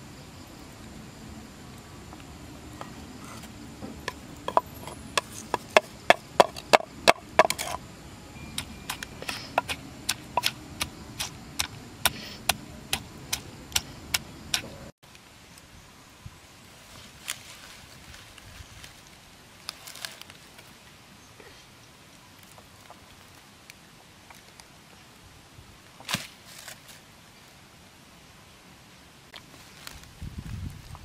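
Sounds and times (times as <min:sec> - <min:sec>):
pestle pounding in wooden mortar: 0:03.9 - 0:07.8, 0:08.6 - 0:14.8.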